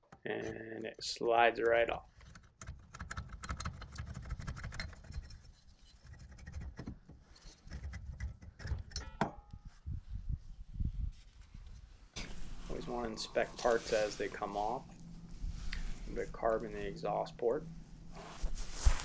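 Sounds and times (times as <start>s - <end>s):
metal engine parts clicking and scraping: 3.4s - 6.8s.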